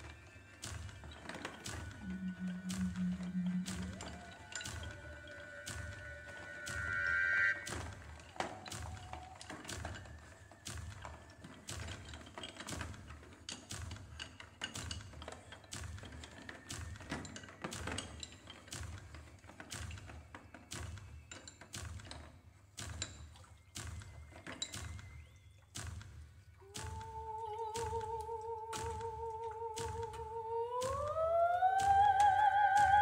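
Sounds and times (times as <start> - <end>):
dry percussion knocks and taps: 0.1 - 31.2
soft low pulse: 1.8 - 8.2
soprano singing high note: 2.0 - 9.4.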